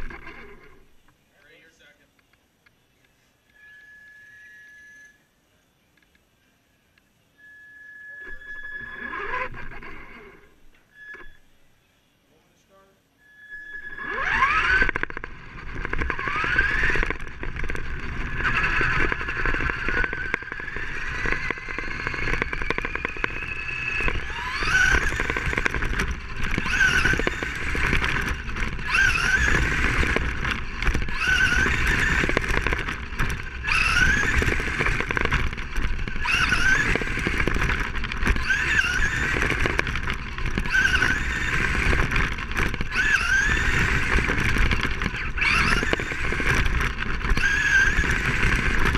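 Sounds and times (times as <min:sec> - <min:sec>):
rc car motor whine: 0:00.0 - 0:01.1, 0:03.4 - 0:05.3, 0:07.4 - 0:11.6, 0:13.2 - 0:48.9
tyres and chassis rumble: 0:14.3 - 0:48.9.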